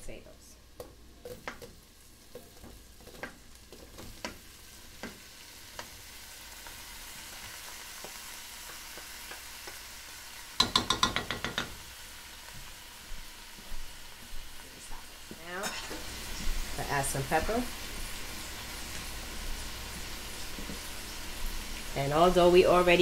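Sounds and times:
butter sizzling in a pot: 0.0 - 23.0.

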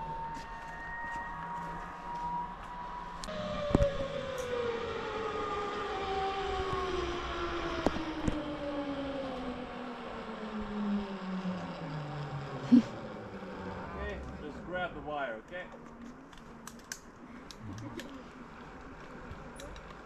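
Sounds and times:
zipline pulleys whining: 0.0 - 15.3.

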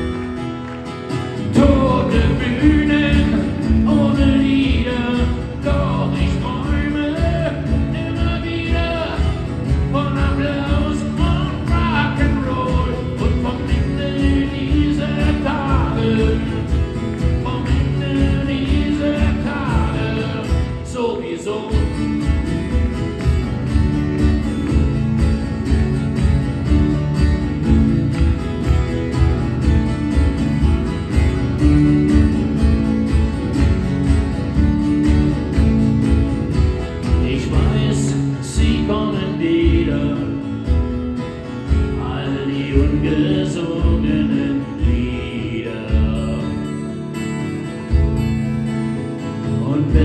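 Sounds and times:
acoustic guitars strumming: 0.0 - 50.0
person singing: 1.4 - 21.9, 37.2 - 40.6, 41.8 - 46.9.

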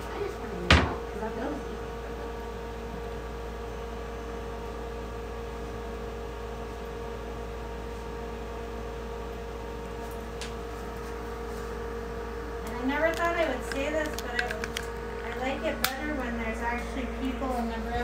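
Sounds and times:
electrical machine hum: 0.0 - 18.0.

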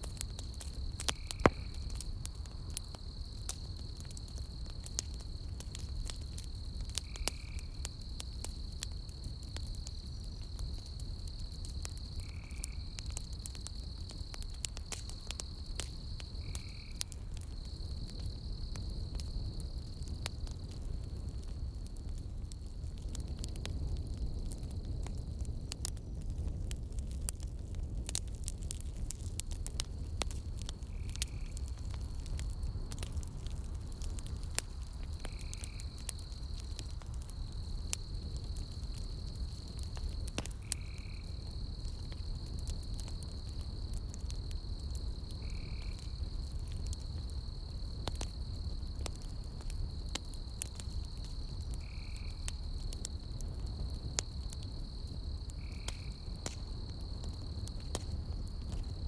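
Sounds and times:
campfire logs crackling: 0.0 - 59.0
high insect trill: 6.2 - 20.4, 35.1 - 36.6, 37.3 - 59.0.

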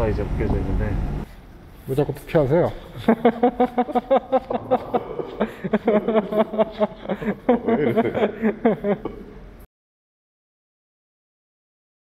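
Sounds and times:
people talking: 0.0 - 1.0, 1.9 - 3.8.

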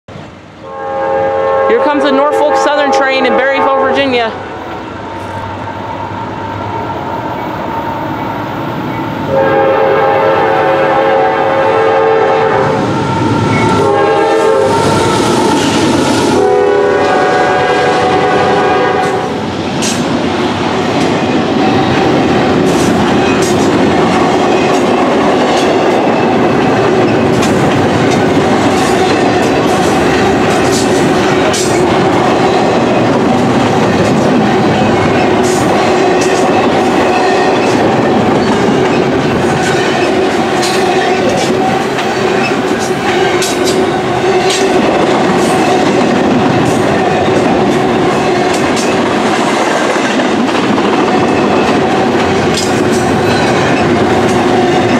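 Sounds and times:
train wheels rumbling: 0.1 - 54.9
locomotive air horn blasts: 0.6 - 4.3, 9.3 - 15.6, 16.2 - 19.4
wheels clicking over rail joints: 20.9 - 54.9.

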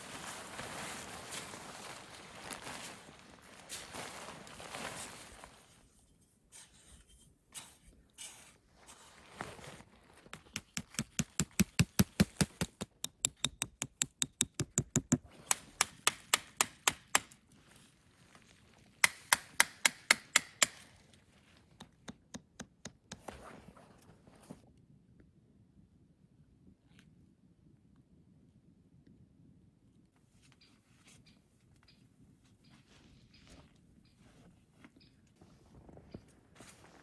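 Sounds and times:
hatchet tapping a stake: 10.5 - 17.4, 19.0 - 20.8, 21.8 - 23.2.

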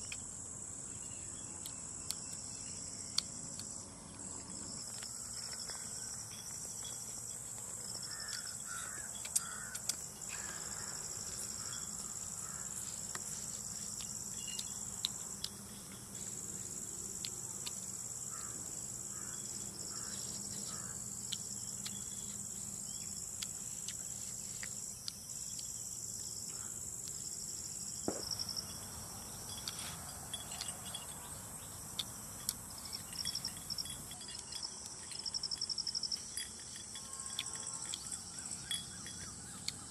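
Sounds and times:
insects trilling: 0.0 - 39.9
crows cawing: 8.1 - 11.0, 11.6 - 12.8, 18.3 - 21.0.

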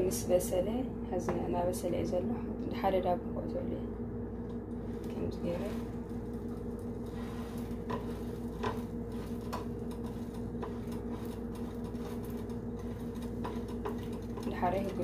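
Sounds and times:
steady low hum: 0.0 - 15.0
eggs frying: 4.5 - 15.0
spatula tapping in a pan: 7.8 - 14.5.

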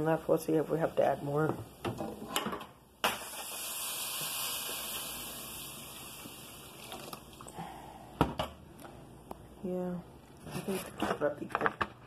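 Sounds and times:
milk hissing in hot pan: 3.1 - 7.4.

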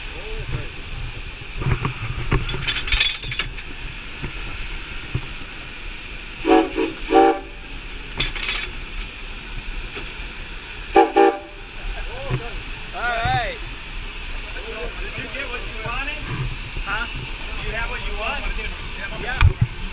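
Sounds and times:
sharp bursts of steam hiss: 0.0 - 19.9
steady hiss of steam: 0.0 - 19.9
steam locomotive whistle toots: 6.4 - 7.7, 10.9 - 11.8.

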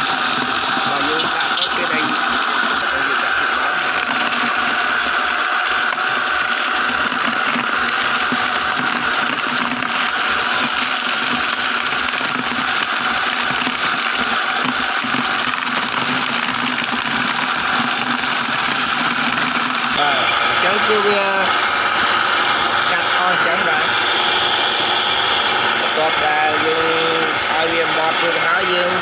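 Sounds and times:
electric motor whine and hum: 0.0 - 29.0.

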